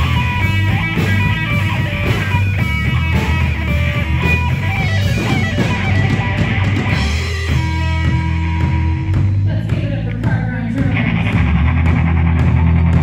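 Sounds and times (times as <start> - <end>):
electric guitar quick notes: 0.0 - 9.4
bass and drums: 0.0 - 13.0.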